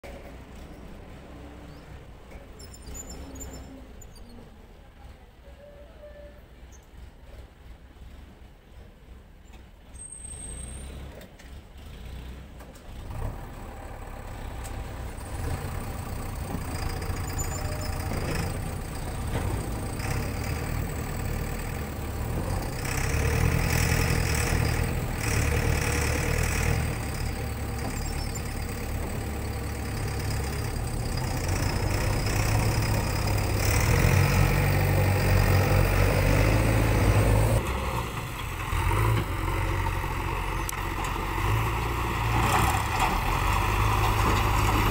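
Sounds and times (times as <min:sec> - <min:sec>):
diesel engine revving under load: 0:10.1 - 0:44.9.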